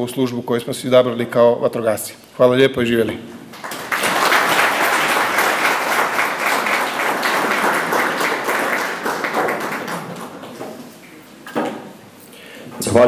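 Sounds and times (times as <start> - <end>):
audience applauding: 3.5 - 10.6.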